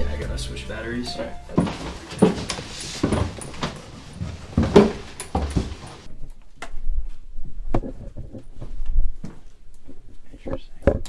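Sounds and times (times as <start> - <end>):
background hiss: 0.0 - 6.1
footsteps on wooden stairs: 1.4 - 6.1.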